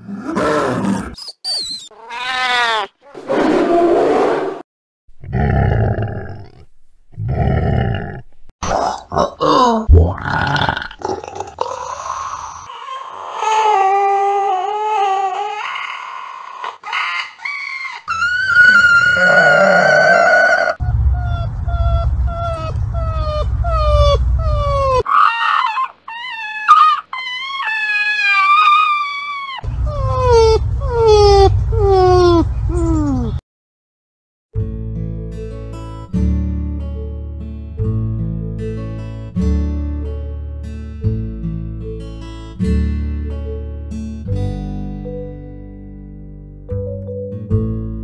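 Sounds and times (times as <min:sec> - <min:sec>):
porcupine whining: 0:00.7 - 0:03.2, 0:15.3 - 0:33.4
loud harsh animal roars: 0:07.2 - 0:09.0, 0:18.4 - 0:25.2
low rumble: 0:20.8 - 0:25.0, 0:29.7 - 0:33.4.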